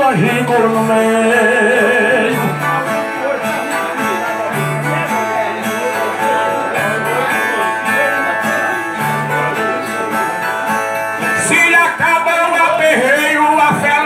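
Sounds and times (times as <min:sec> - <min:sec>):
steel-strung guitars playing: 0:00.0 - 0:14.0.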